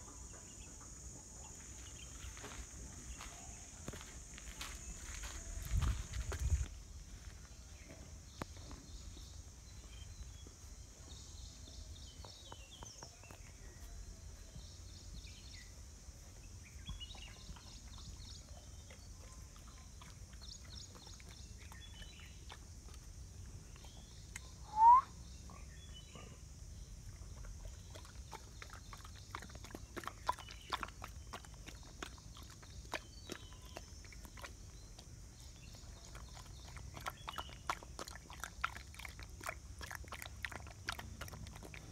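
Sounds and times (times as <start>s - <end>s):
dog lapping and slurping food: 17.0s - 24.2s, 27.0s - 41.9s.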